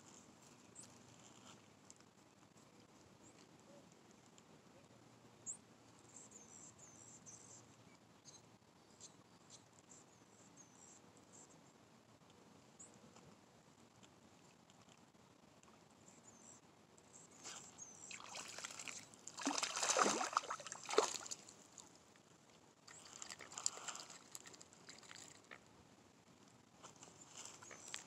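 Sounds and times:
fish splashing in water: 0:18.1 - 0:21.8.

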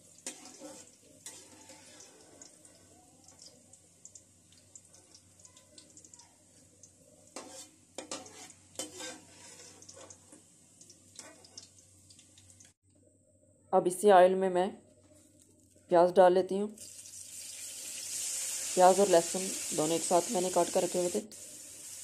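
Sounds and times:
oil sizzling faintly: 0:00.0 - 0:12.8, 0:16.7 - 0:22.0
spoon scraping and clinking on pan: 0:00.2 - 0:02.4, 0:07.4 - 0:10.3.

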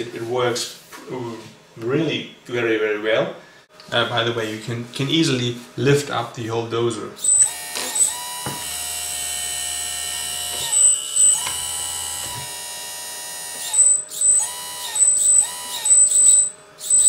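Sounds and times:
electric hydraulic pump whining: 0:07.2 - 0:17.0.

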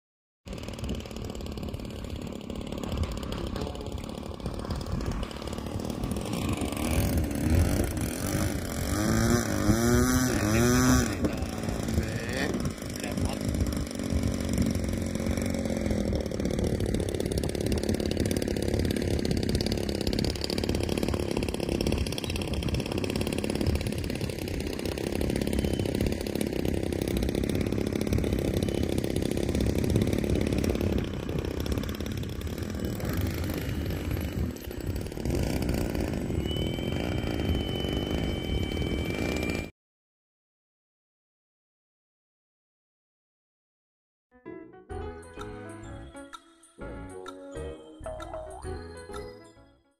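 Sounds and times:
model airplane motor buzzing: 0:00.5 - 0:39.7
thin high whine: 0:36.4 - 0:39.7.

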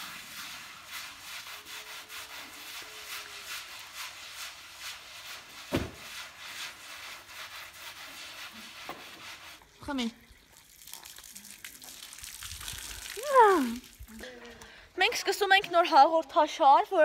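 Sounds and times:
broom scrubbing wet rug: 0:00.0 - 0:14.1
loud thump: 0:05.7 - 0:06.0.

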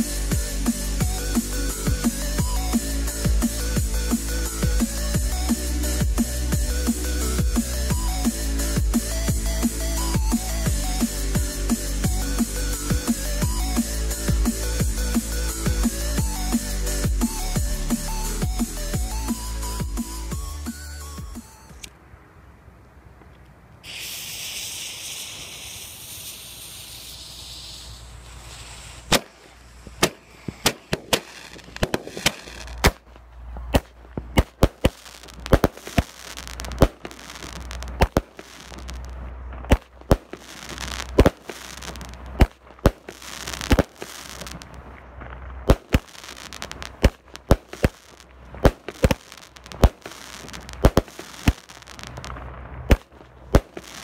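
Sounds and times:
firework fuse hissing: 0:00.0 - 0:20.8, 0:23.8 - 0:44.9, 0:45.6 - 0:54.0
firework bangs: 0:23.8 - 0:54.0.

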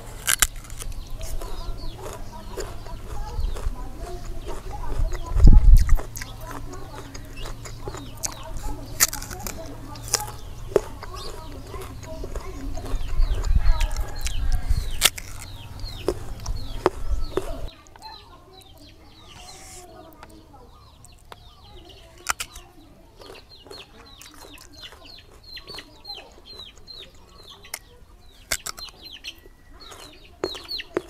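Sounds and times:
chickens peeping: 0:00.0 - 0:31.0
crunchy chewing of mango: 0:00.0 - 0:31.0.

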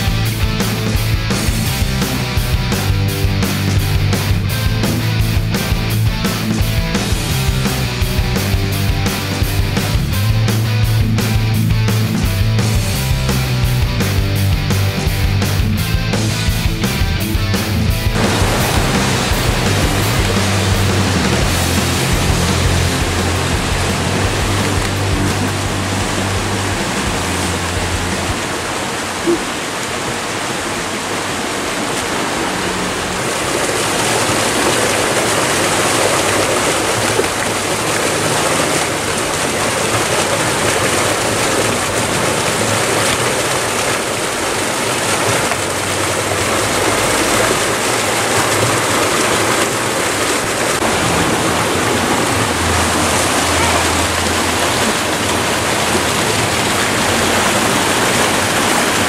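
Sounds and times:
river rushing over stones: 0:18.1 - 0:59.0.

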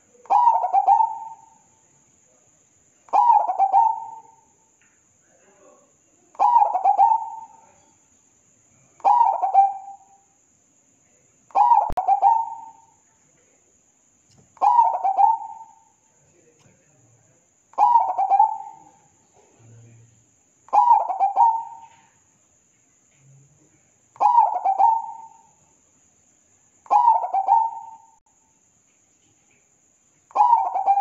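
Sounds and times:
dove cooing: 0:00.0 - 0:01.6, 0:03.1 - 0:04.4, 0:06.4 - 0:07.7, 0:09.0 - 0:10.0, 0:11.5 - 0:12.8, 0:14.6 - 0:15.9, 0:17.8 - 0:19.0, 0:20.7 - 0:22.1, 0:24.2 - 0:25.6, 0:26.9 - 0:28.2, 0:30.3 - 0:31.0.

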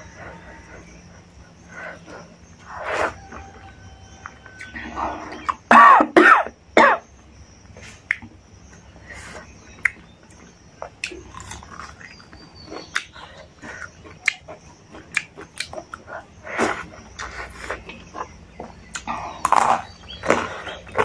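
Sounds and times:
mouth clicks and smacks: 0:08.0 - 0:08.4, 0:09.4 - 0:21.0
person chewing: 0:09.2 - 0:21.0.

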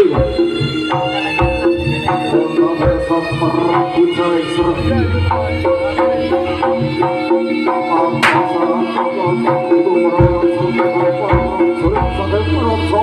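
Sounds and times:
hand drum quick rhythm: 0:00.0 - 0:13.0
held pitched gamelan tones: 0:00.0 - 0:13.0
sharp crack: 0:08.2 - 0:08.5.

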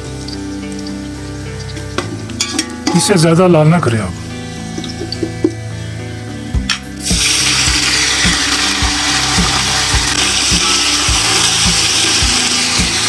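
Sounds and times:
hot oil sizzling loudly: 0:00.0 - 0:03.4, 0:06.7 - 0:13.0
background music with steady beat: 0:00.0 - 0:13.0
water pouring: 0:07.0 - 0:13.0.

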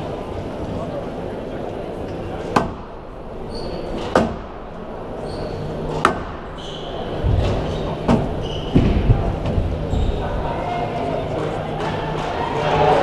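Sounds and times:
squash ball hits: 0:02.5 - 0:02.9, 0:04.0 - 0:04.6, 0:05.9 - 0:06.5
shoes squeaking on court floor: 0:05.2 - 0:05.9, 0:06.6 - 0:09.1, 0:09.8 - 0:10.4.

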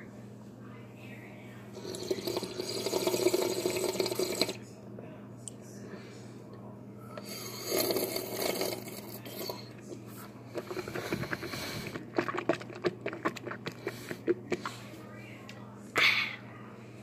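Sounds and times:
ice being chewed: 0:01.8 - 0:04.6, 0:07.2 - 0:14.9.

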